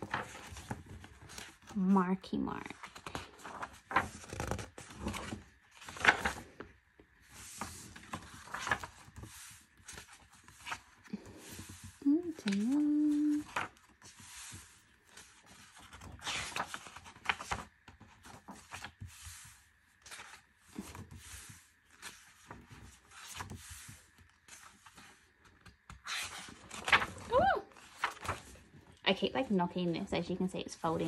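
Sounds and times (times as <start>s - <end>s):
paper pages rustling: 0.0s - 1.9s, 2.6s - 29.3s.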